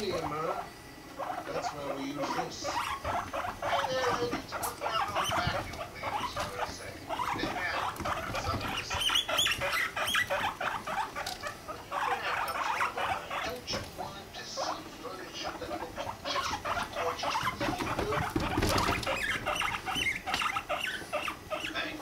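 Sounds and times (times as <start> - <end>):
guinea pigs squeaking and chuttering: 0.0 - 22.0.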